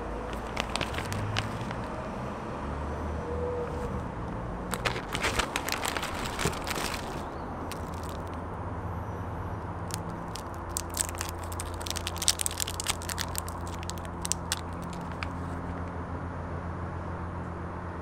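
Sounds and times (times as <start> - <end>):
plastic wrapper crinkling: 0.0 - 2.0, 4.7 - 8.4, 9.6 - 15.9.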